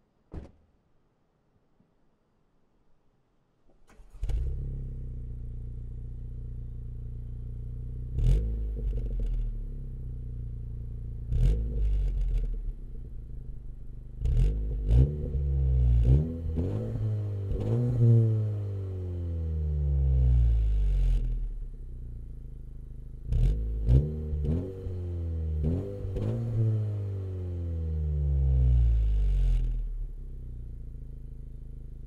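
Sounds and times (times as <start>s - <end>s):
car engine starting and revving: 3.9s - 10.0s, 11.2s - 21.4s, 23.2s - 30.6s.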